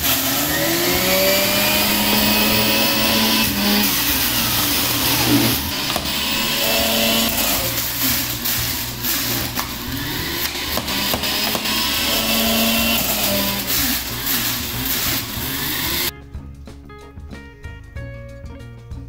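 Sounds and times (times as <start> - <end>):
electric juicer grating: 0.0 - 16.1
background music with steady beat: 0.0 - 19.0.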